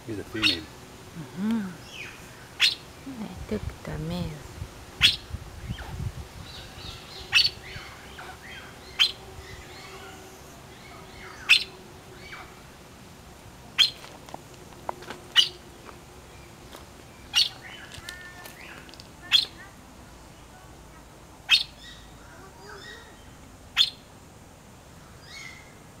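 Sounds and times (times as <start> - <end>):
bird sharp call: 10.8 - 12.6
soft bird chirps: 13.8 - 14.0, 15.3 - 20.7.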